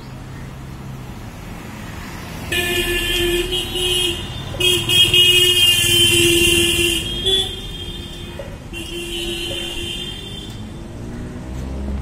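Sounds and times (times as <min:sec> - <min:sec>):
vehicle horn blasts: 0:02.5 - 0:10.7.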